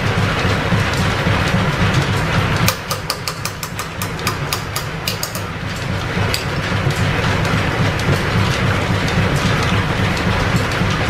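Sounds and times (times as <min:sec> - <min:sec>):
lathe running with rhythmic clatter: 0:00.0 - 0:11.0
sharp metallic clicks: 0:02.7 - 0:05.5.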